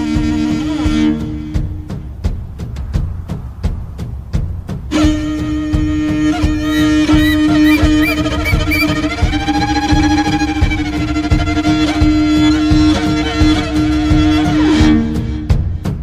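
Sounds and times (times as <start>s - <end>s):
bowed fiddle melody: 6.6s - 9.1s
drum beat: 6.6s - 9.1s.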